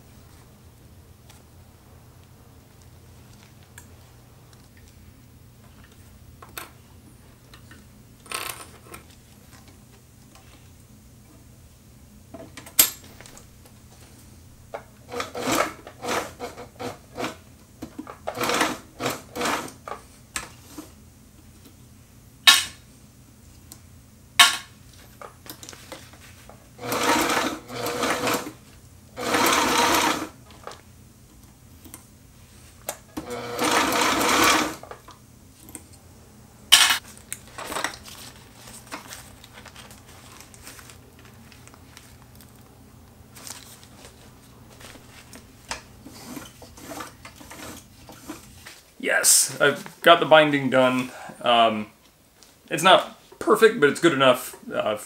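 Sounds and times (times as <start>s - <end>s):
sewing machine stitching: 15.1s - 17.4s, 18.2s - 19.8s, 26.8s - 28.6s, 29.2s - 30.4s, 33.2s - 34.9s, 46.0s - 48.5s.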